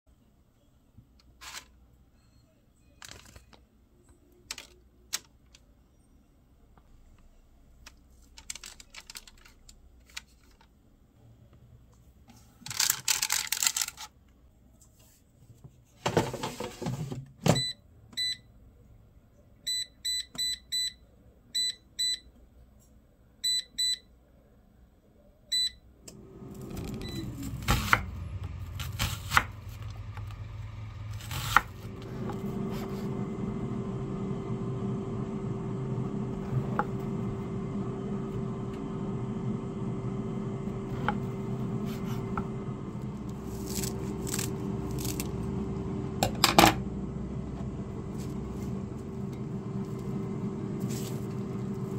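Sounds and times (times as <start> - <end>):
air fryer fan humming: 26.1 - 51.9.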